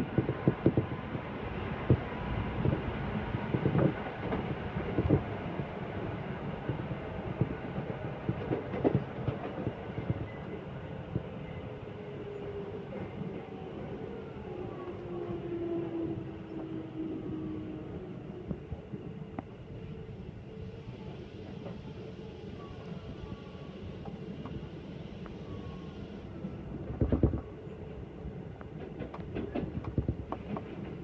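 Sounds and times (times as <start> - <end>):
train rumble: 0.0 - 31.0
train wheel knocks: 8.3 - 9.7, 28.8 - 31.0.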